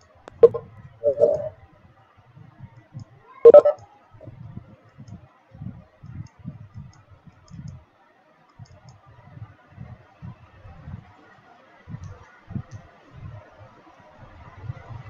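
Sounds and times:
keyboard and mouse clicks: 0.3 - 1.5, 3.5 - 3.8.

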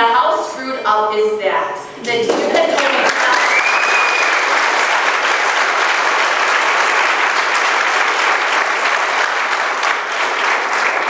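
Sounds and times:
audience applauding: 2.3 - 11.0.

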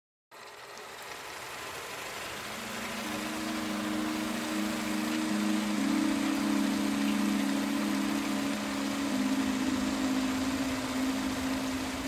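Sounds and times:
steady hiss: 0.4 - 12.0
low synthesizer chords: 2.5 - 12.0.

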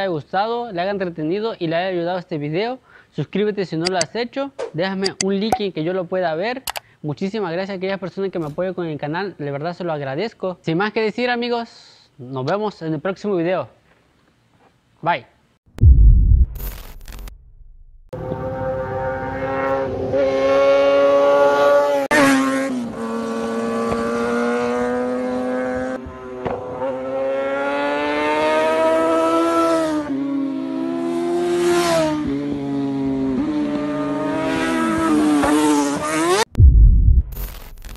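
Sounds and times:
motorcycle engine revving: 18.2 - 36.6.

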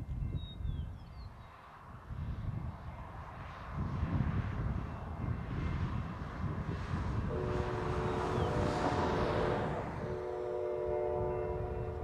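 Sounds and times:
diesel locomotive rumble: 0.0 - 12.0
train air horn chord: 7.3 - 12.0.

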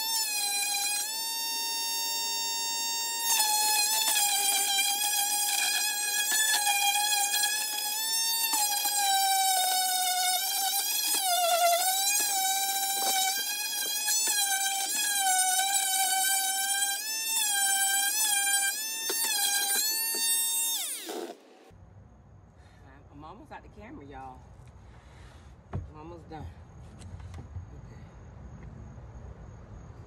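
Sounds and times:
electric sander on wood: 0.0 - 21.6.

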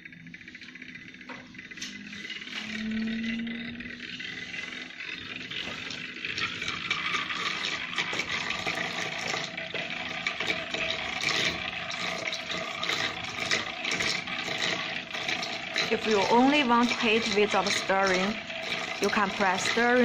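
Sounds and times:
liquid churning in a beaker: 0.0 - 20.0.

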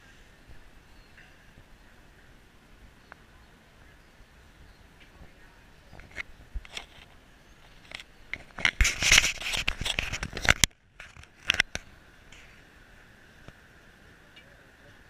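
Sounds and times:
camera handling noise: 6.0 - 12.4.

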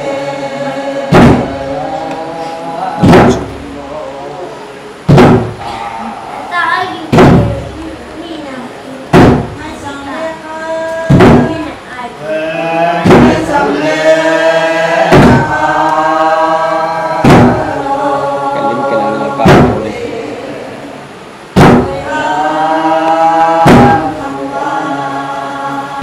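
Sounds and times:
group chanting: 0.0 - 8.2, 9.1 - 26.0
barrel drum beats: 1.1 - 1.7, 3.0 - 3.7, 5.0 - 7.8, 9.1 - 9.8, 11.1 - 11.7, 13.0 - 14.2, 15.0 - 16.2, 17.2 - 17.8, 19.3 - 20.0, 21.5 - 22.2, 23.6 - 24.2.

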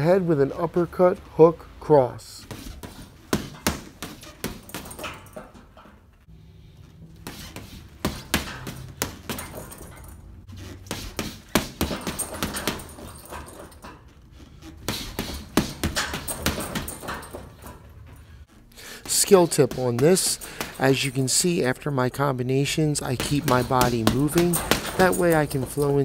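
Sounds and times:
boxing gloves hitting punching bag: 2.4 - 5.6, 7.2 - 13.8, 14.7 - 17.9, 19.0 - 21.4, 23.0 - 26.0.

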